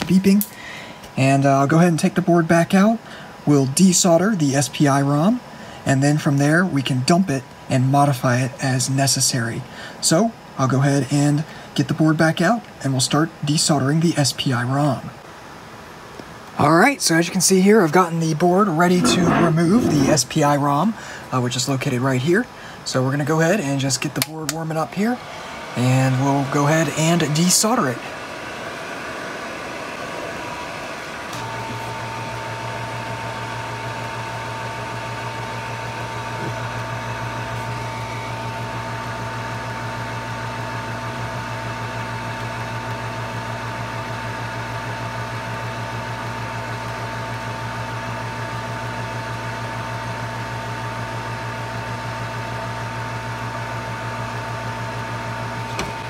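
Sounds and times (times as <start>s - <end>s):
hot air blower whirring: 0.0s - 1.6s, 18.6s - 21.7s, 22.3s - 56.0s
quiet fan whir: 0.0s - 56.0s.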